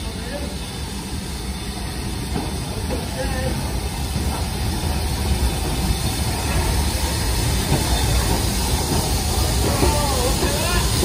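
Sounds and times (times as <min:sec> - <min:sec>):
train wheels rumbling on rails: 0:00.0 - 0:11.0.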